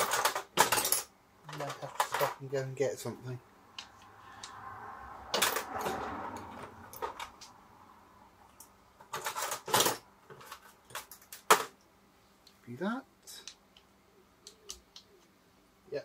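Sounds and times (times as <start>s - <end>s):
hand tools clicking and clattering: 0.0s - 2.5s, 5.3s - 7.5s, 8.5s - 11.8s.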